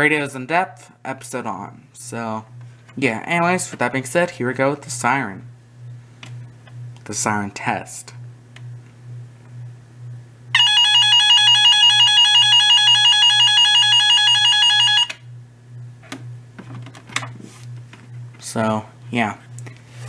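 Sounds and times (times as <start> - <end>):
pulsing electronic alarm tone: 10.5 - 15.2.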